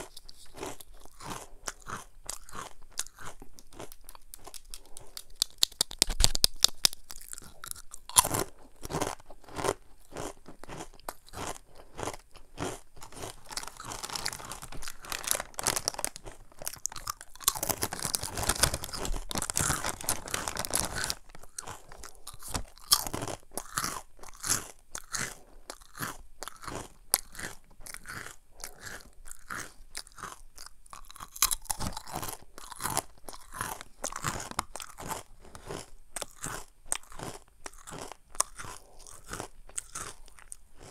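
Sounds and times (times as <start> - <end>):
crunchy snack being chewed: 0.0 - 40.9.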